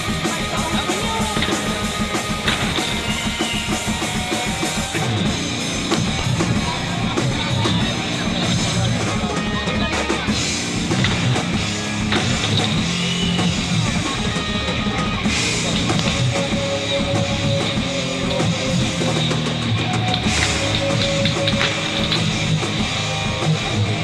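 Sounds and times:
rock music with drums and guitar: 0:00.0 - 0:24.0.

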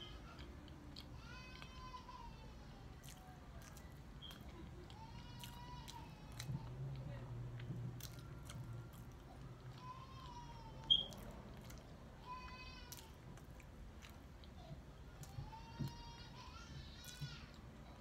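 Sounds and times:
person chewing and biting: 0:03.0 - 0:15.3.

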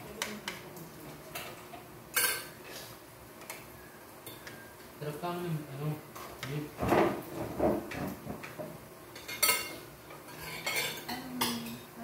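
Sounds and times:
utensils and tableware clinking: 0:01.3 - 0:02.8, 0:07.9 - 0:11.9.

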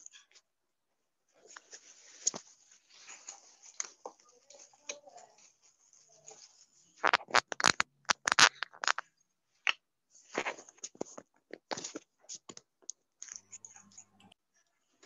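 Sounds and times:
fingers scratching and knocking phone: 0:07.0 - 0:09.0.

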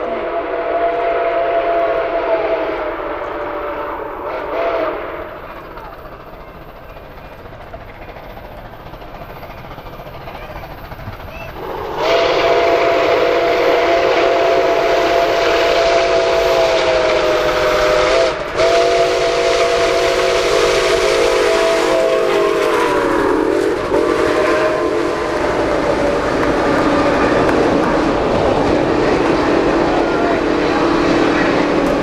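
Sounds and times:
chime steam whistle blowing: 0:00.0 - 0:05.4, 0:11.3 - 0:27.4
rushing noise of moving train: 0:00.0 - 0:32.0.

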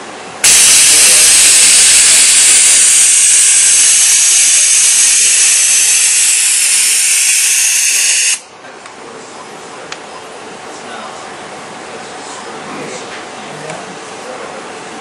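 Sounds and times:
compressed air hissing: 0:00.4 - 0:08.4.

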